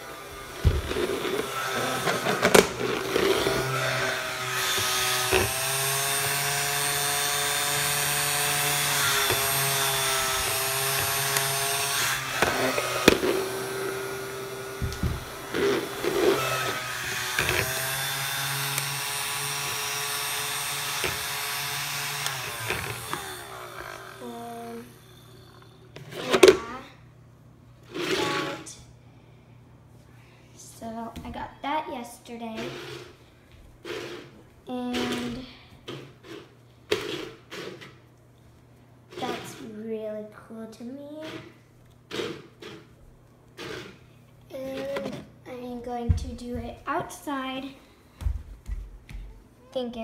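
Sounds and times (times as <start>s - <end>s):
fan motor whine: 0.0s - 31.2s.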